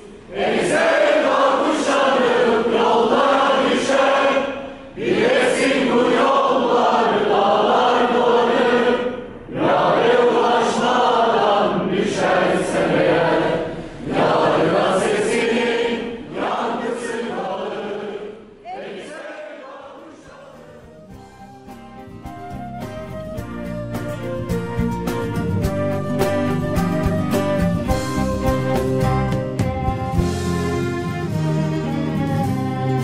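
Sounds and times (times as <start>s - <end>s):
group of people singing: 0.0s - 21.2s.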